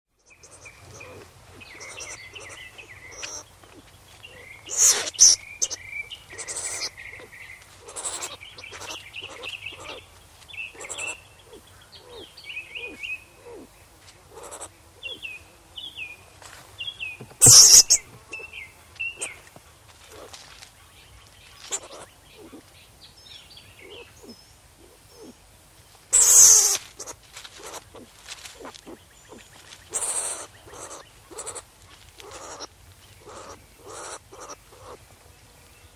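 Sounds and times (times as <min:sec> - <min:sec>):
skunk chirping: 0:00.2 - 0:13.7, 0:14.3 - 0:15.3, 0:17.4 - 0:20.6, 0:21.4 - 0:22.7, 0:23.8 - 0:25.3, 0:26.1 - 0:35.0
harsh skunk bursts: 0:04.7 - 0:06.9, 0:17.4 - 0:18.0, 0:26.1 - 0:27.8.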